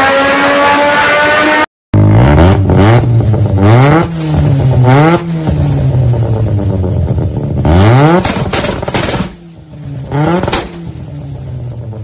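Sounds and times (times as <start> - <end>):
rotary engine revving: 0.0 - 6.7, 10.0 - 11.0
exhaust pops: 3.0 - 11.1.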